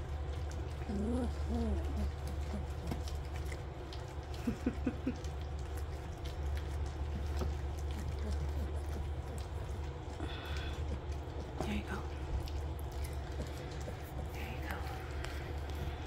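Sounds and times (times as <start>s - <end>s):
puppies lapping and smacking food: 0.0s - 16.0s
puppy whimpers: 0.7s - 3.6s.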